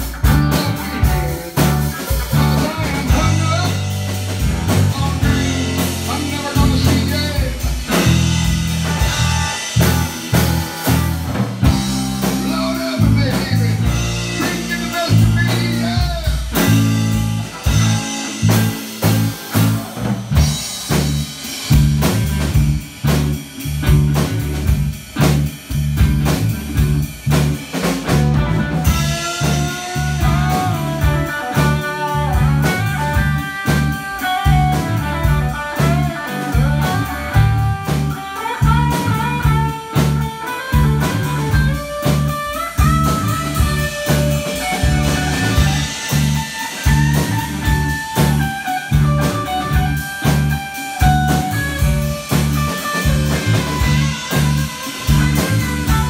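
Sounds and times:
rock band playing: 0.0s - 56.0s
electric guitar solo: 28.2s - 56.0s.

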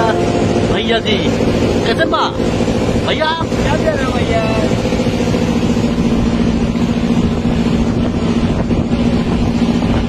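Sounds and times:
boat engine droning: 0.0s - 10.0s
water noise: 0.0s - 10.0s
wind: 0.0s - 10.0s.

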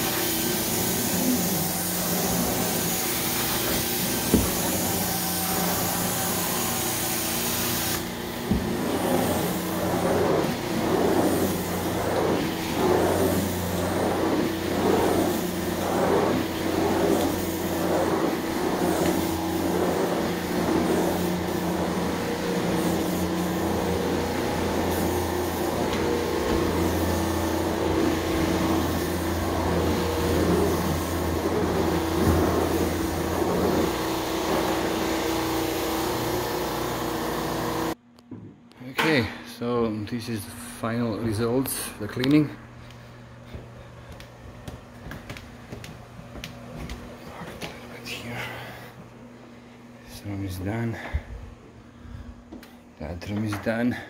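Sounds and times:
carpet cleaner wand suction: 0.0s - 38.0s
loud hiss: 0.0s - 38.0s
machine hum: 0.0s - 54.0s.

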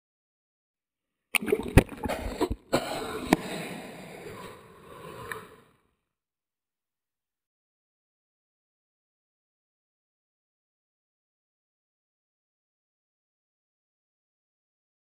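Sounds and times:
sea water splashing and sloshing: 1.4s - 4.4s.

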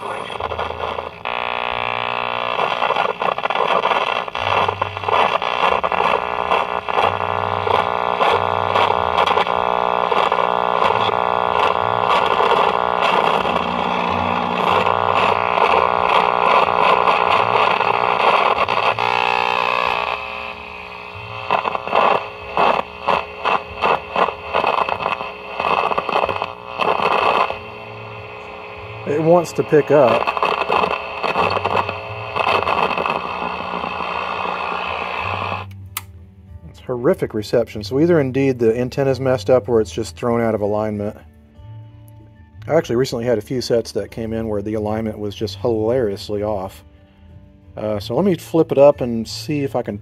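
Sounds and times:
radio static and hum: 0.0s - 35.7s, 47.8s - 50.0s
short crackling bursts: 0.0s - 35.7s.

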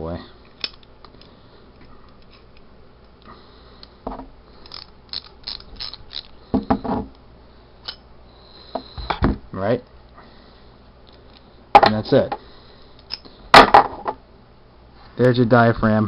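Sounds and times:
ratcheting wrench clicking: 4.6s - 6.3s.

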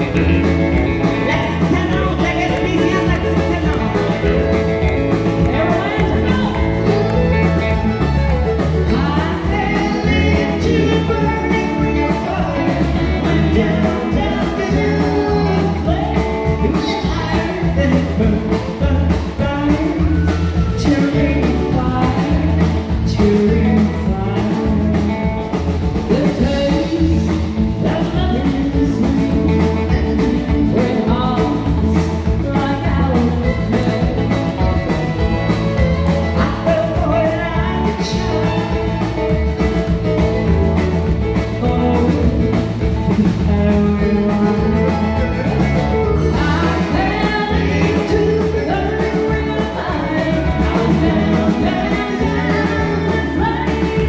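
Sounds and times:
women singing: 0.0s - 7.4s, 8.8s - 25.4s, 26.0s - 34.8s, 36.3s - 38.9s, 46.2s - 54.0s
drums: 0.0s - 54.0s
electric guitar: 0.0s - 54.0s
fiddle: 0.0s - 54.0s.

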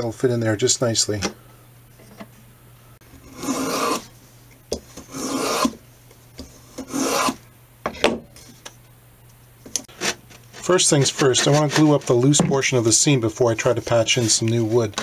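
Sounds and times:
hand plane shaving wood: 3.3s - 4.1s, 5.1s - 5.7s, 6.8s - 7.4s, 9.9s - 12.2s.

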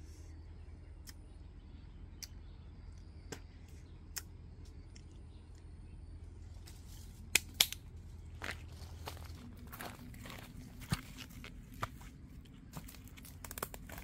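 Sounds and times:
sharp snaps: 1.0s - 1.2s, 2.2s - 2.4s, 4.1s - 5.7s, 7.3s - 7.8s.

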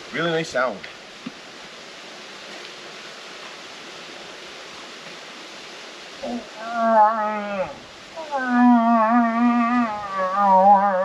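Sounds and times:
faint steady hiss: 0.0s - 11.0s
moose-calling horn: 6.3s - 11.0s.

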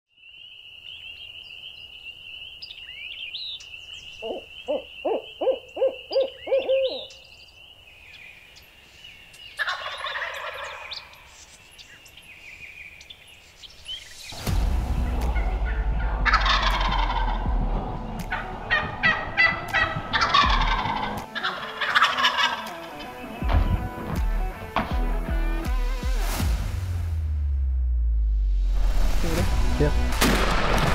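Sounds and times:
turkey gobbling: 4.2s - 7.1s, 9.6s - 11.2s, 15.4s - 23.2s
loud sound with deep bass: 14.4s - 21.1s.

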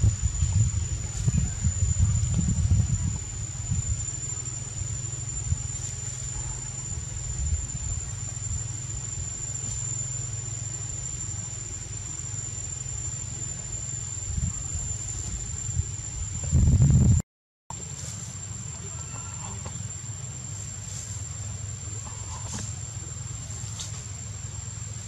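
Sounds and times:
low rumble: 0.0s - 17.2s
insect high-pitched trill: 0.0s - 25.0s.

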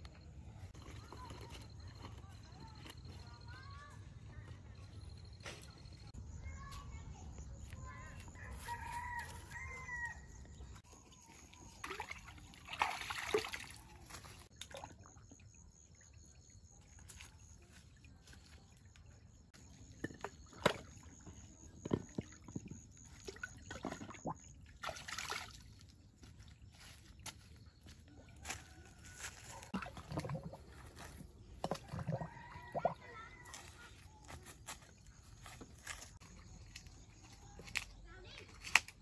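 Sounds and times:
rooster crowing: 8.4s - 10.4s
fish splashing in water: 11.6s - 15.4s, 20.4s - 25.8s.

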